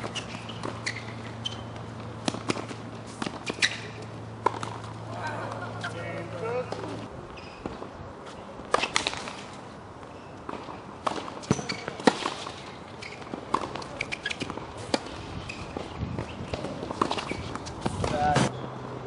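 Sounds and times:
tennis ball struck by rackets: 0.0s - 4.9s, 8.7s - 9.4s, 10.5s - 12.6s, 13.2s - 18.5s.

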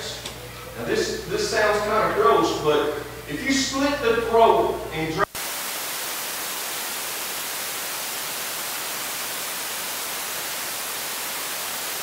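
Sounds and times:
static hiss: 5.2s - 12.0s.

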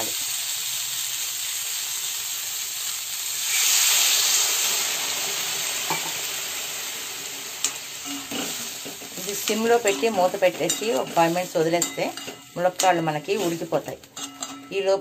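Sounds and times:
water hissing in hot pan: 0.0s - 14.0s
vegetables sizzling in hot oil: 0.0s - 15.0s.

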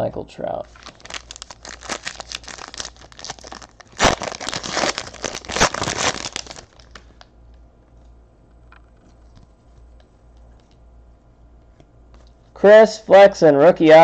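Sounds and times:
foil wrapper tearing and crinkling: 0.7s - 7.2s
faint clicks of cards handled: 7.0s - 10.8s, 11.6s - 12.5s.

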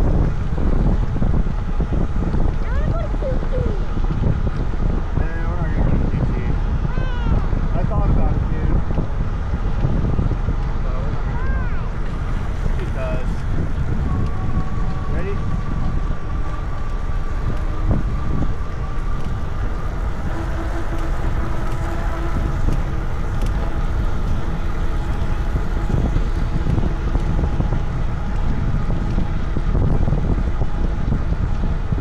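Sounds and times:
low rumble: 0.0s - 32.0s
wind buffeting microphone: 0.0s - 32.0s
faint whine: 10.5s - 32.0s.

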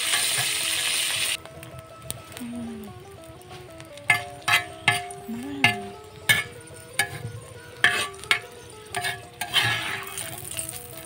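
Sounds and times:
chilies sizzling in hot oil: 0.0s - 11.0s
spatula scraping and knocking pan: 4.1s - 10.7s.

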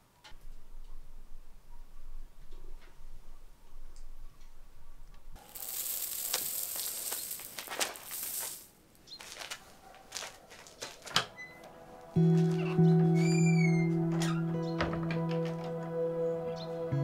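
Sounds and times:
stray seeds ticking: 5.4s - 9.6s
seeds pattering on concrete: 5.4s - 11.1s.

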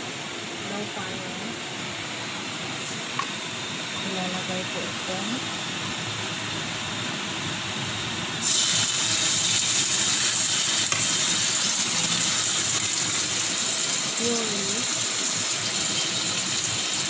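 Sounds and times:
hot oil sizzling in wok: 8.4s - 17.0s.

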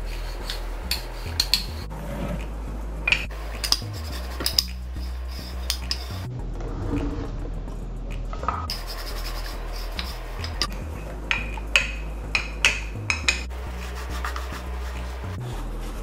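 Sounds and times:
steady low hum: 0.0s - 16.0s
sharp knocks and clacks: 8.1s - 10.7s.

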